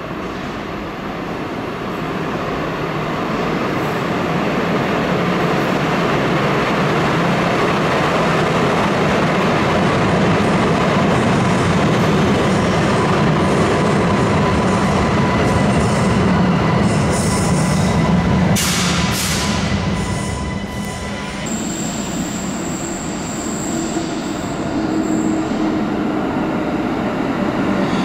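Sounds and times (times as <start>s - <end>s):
train rumbling into station: 0.0s - 28.0s.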